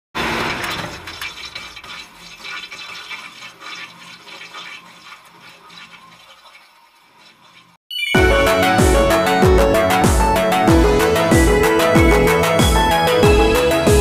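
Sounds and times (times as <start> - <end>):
crumbling rock and debris: 0.2 - 2.6.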